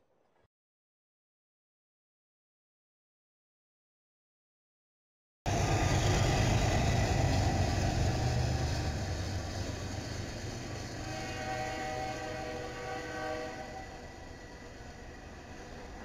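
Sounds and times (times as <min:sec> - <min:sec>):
train rumbling on rails: 0:05.5 - 0:16.0.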